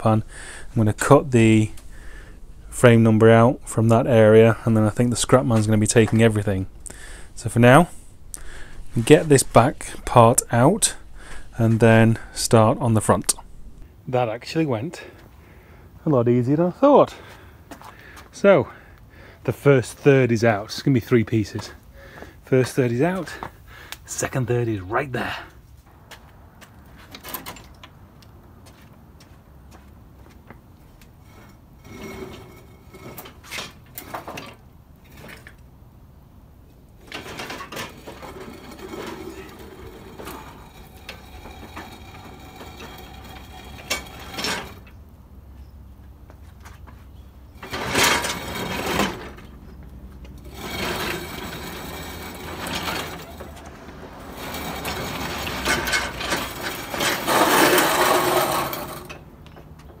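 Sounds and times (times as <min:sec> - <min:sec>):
loose metal clanking: 0:00.0 - 0:13.8, 0:37.0 - 0:45.0, 0:47.6 - 0:49.6, 0:50.4 - 1:00.0
metal scraping on concrete: 0:00.0 - 0:13.8, 0:31.2 - 0:35.6, 0:37.0 - 0:45.0, 0:47.6 - 0:49.8, 0:50.4 - 0:59.3.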